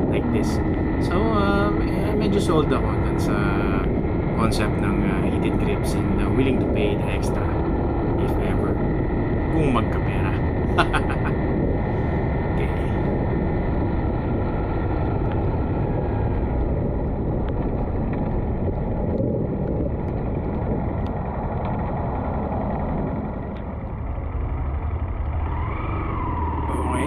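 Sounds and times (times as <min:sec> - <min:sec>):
wind rush on microphone: 0:00.0 - 0:27.0
motorcycle engine: 0:13.0 - 0:27.0.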